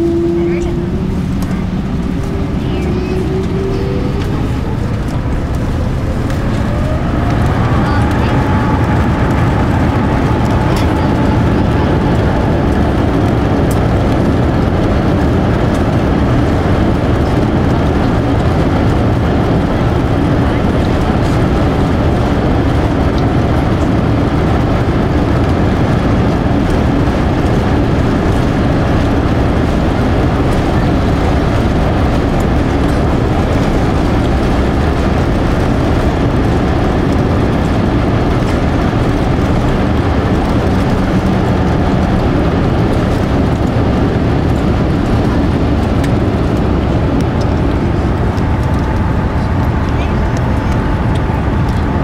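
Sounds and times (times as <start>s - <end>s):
jet engines roaring at takeoff: 0.0s - 52.0s.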